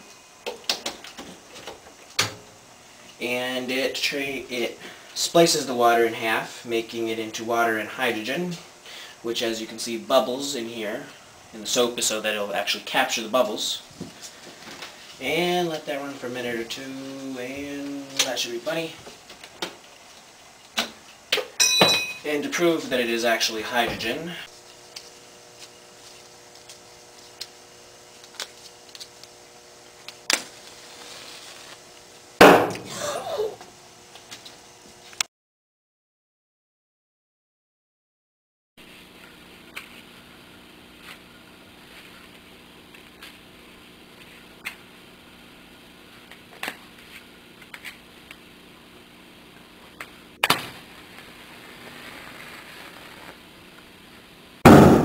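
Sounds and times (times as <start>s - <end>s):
match striking and flaring: 30.2s - 31.8s
loud sharp pop: 32.4s - 32.9s, 54.6s - 55.0s
loud pop of bubbles igniting: 54.6s - 55.0s.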